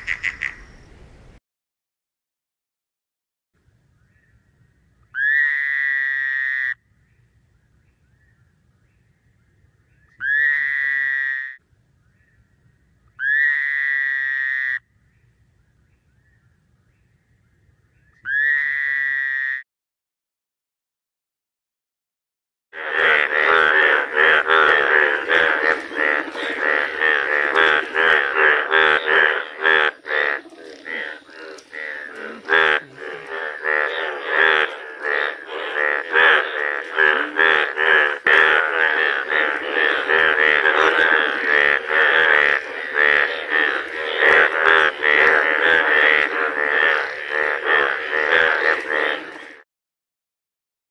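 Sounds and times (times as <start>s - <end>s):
frog calling: 0.0s - 0.9s, 5.0s - 6.9s, 9.9s - 11.6s, 13.1s - 14.9s, 18.1s - 19.6s, 22.8s - 49.6s.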